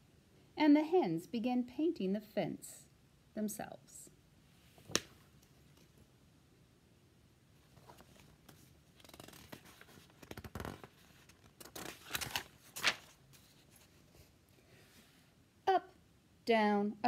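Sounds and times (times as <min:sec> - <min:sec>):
book pages turning: 0:07.7 - 0:14.4.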